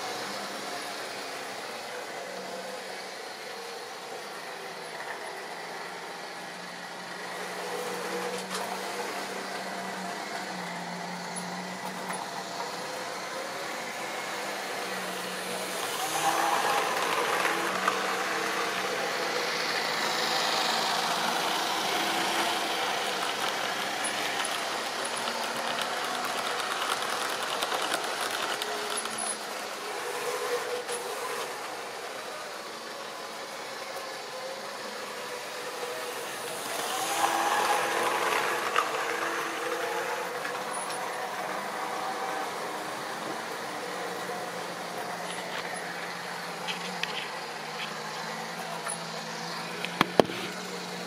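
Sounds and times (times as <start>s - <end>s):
whirr of small electric motors: 0.0s - 51.0s
wheels clicking over rail joints: 22.2s - 29.5s.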